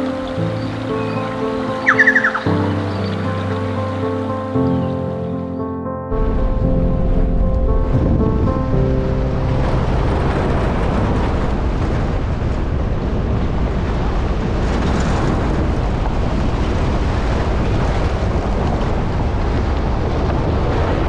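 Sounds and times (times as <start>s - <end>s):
steady low rumble: 5.6s - 21.0s
wind buffeting microphone: 6.1s - 21.0s.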